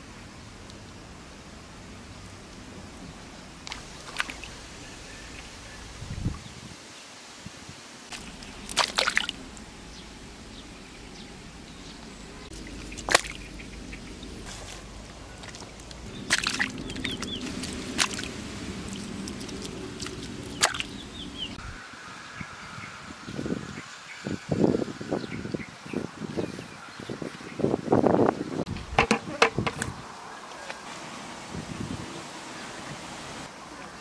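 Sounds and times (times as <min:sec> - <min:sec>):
fish splashing into water: 0:03.6 - 0:04.6, 0:08.1 - 0:09.5, 0:12.8 - 0:13.5, 0:14.5 - 0:21.2
steady low hum: 0:08.1 - 0:23.7.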